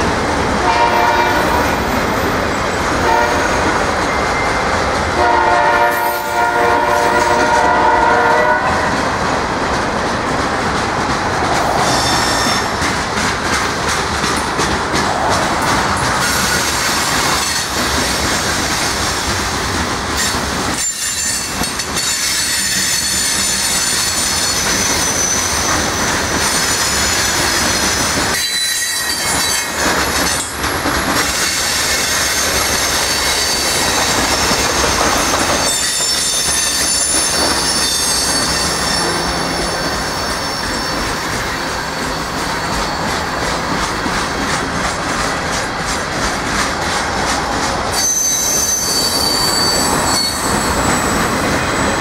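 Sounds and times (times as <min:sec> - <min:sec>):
train wheels rumbling and clacking: 0:00.0 - 0:52.0
high-pitched wheel squeal: 0:11.8 - 0:12.7, 0:20.8 - 0:25.8, 0:28.3 - 0:29.8, 0:31.4 - 0:43.2, 0:47.9 - 0:52.0.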